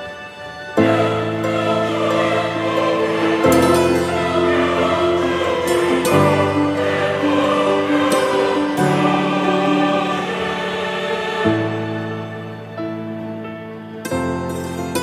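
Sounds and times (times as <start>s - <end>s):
loud held music chords: 0.8s - 12.7s.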